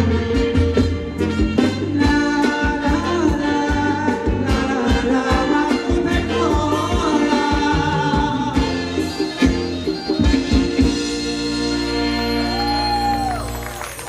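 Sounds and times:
live dance band music: 0.0s - 14.0s
person singing: 1.6s - 9.5s.

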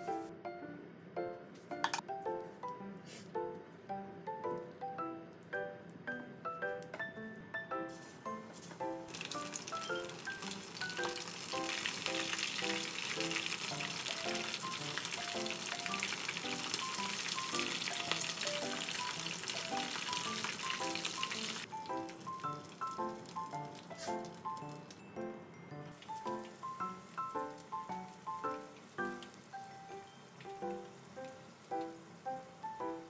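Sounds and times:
oil sizzling and popping: 8.6s - 25.1s, 25.9s - 33.0s.

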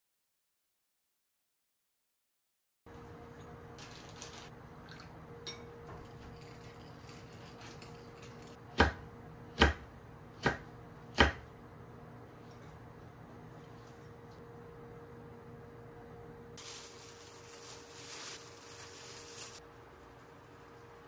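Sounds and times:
knife chopping on wooden board: 8.7s - 11.5s.

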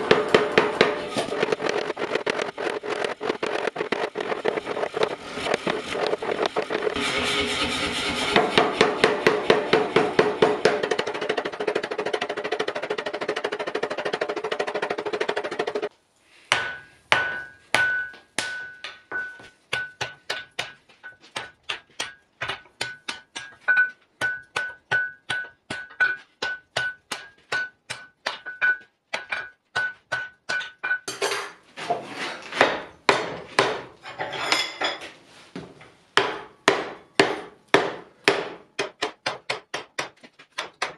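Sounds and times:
air forging hammer pounding iron: 0.0s - 15.9s, 16.5s - 31.1s, 32.6s - 33.9s, 36.2s - 40.9s
hand hammer ringing on anvil: 16.6s - 21.3s.

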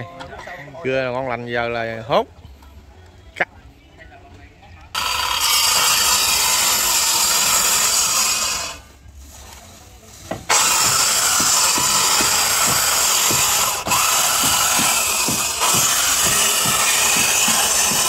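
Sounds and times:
circular saw cutting wood: 5.0s - 9.0s, 10.4s - 18.0s.

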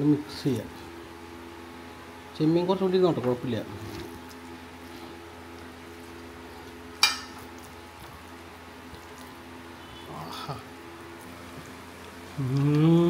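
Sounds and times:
steady low hum: 0.0s - 13.0s
eating by hand from a plate: 3.7s - 9.5s.

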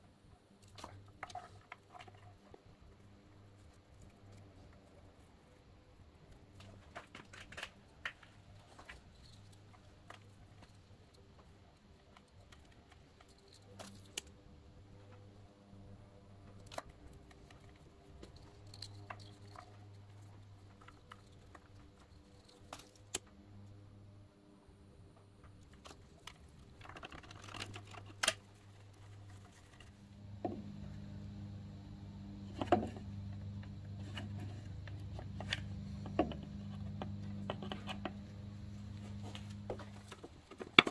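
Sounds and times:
faint low hum: 0.0s - 40.9s
wire connectors clicking and rustling: 6.3s - 15.4s, 16.4s - 23.4s, 25.5s - 40.9s.

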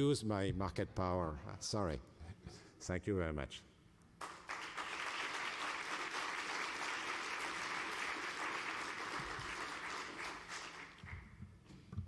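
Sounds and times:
audience applauding: 4.2s - 11.3s.

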